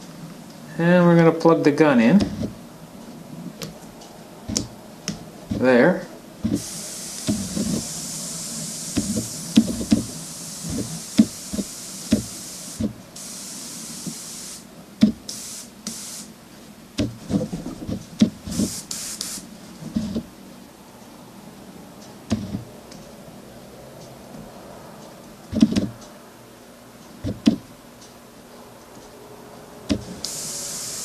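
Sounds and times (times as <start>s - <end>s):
airbrush hissing: 6.5s - 14.7s, 15.3s - 16.3s, 18.4s - 19.5s, 30.0s - 31.0s.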